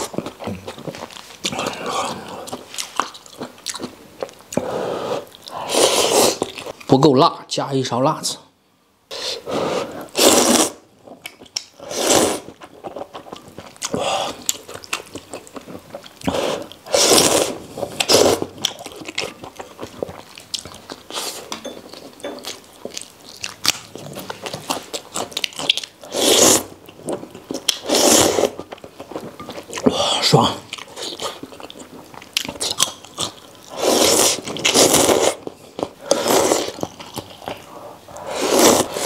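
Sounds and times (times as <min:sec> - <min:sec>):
chewing and mouth smacking: 0:00.0 - 0:04.6, 0:11.1 - 0:11.7, 0:12.5 - 0:16.8, 0:17.9 - 0:26.0, 0:30.6 - 0:33.7
person slurping noodles: 0:04.6 - 0:06.6, 0:09.1 - 0:10.8, 0:11.8 - 0:12.6, 0:16.3 - 0:18.5, 0:26.0 - 0:26.7, 0:27.8 - 0:28.6, 0:33.7 - 0:35.4, 0:36.0 - 0:36.8, 0:37.7 - 0:39.0.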